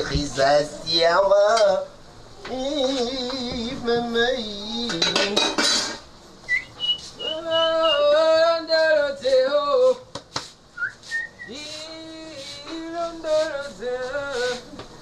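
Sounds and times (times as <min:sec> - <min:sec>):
person humming: 0:02.4 - 0:05.0, 0:11.5 - 0:14.8.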